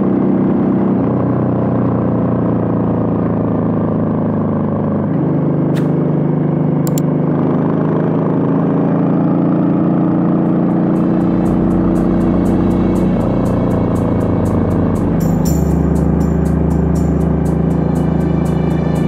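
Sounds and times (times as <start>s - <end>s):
faint ticking music beat: 10.8s - 19.0s.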